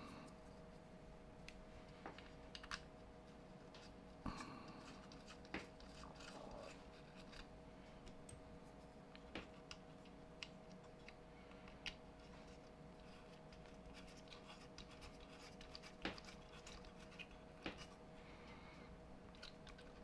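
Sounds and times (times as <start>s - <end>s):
faint steady hum: 0.0s - 20.0s
small parts clicking and tapping: 1.5s - 2.9s, 19.3s - 20.0s.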